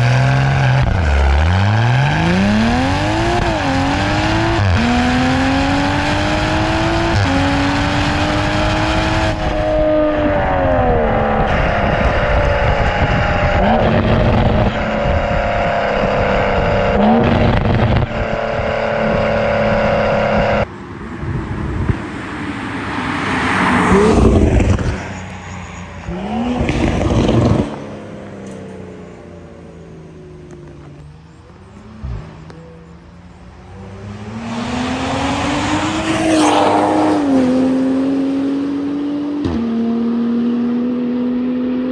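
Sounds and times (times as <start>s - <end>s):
car engine accelerating: 0.0s - 20.7s, 22.8s - 41.9s
car driving past: 22.0s - 29.4s.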